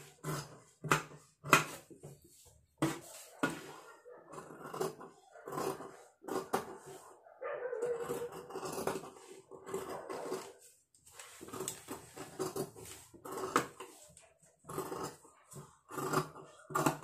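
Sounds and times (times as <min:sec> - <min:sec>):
scissors snipping fabric: 0:04.3 - 0:06.8, 0:14.7 - 0:17.0.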